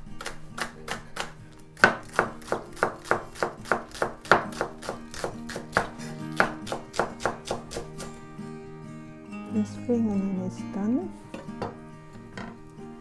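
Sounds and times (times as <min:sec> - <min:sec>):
knife chopping on wooden board: 0:00.2 - 0:08.2.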